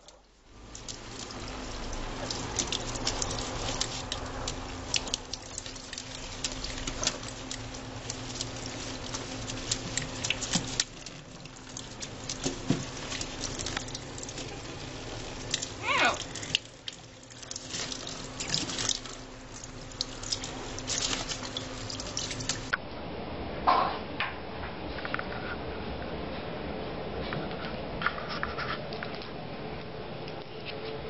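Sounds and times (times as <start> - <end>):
tap water running into metal sink: 0.0 - 22.7
bird flapping wet wings: 0.6 - 22.7.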